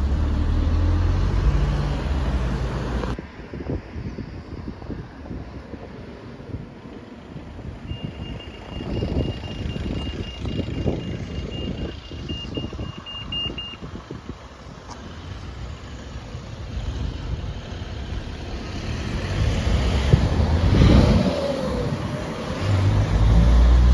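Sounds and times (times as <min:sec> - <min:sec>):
road traffic: 0:00.0 - 0:23.9
wind buffeting microphone: 0:01.2 - 0:23.9
pedestrian crossing signal bleeping: 0:07.8 - 0:13.9
car passing: 0:15.2 - 0:23.9.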